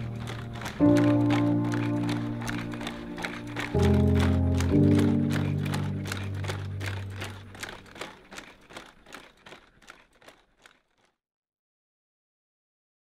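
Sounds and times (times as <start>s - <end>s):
low music chord: 0.0s - 7.6s
robot footsteps on gravel: 0.0s - 11.0s.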